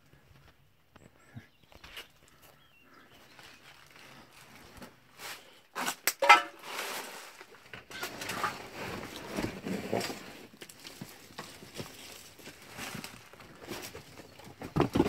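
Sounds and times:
wood scraping and rustling: 3.7s - 15.0s.

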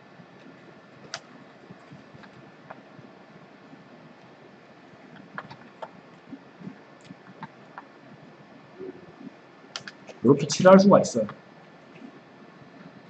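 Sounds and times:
low steady hiss: 0.0s - 13.0s
computer input clicks and taps: 9.8s - 10.0s.

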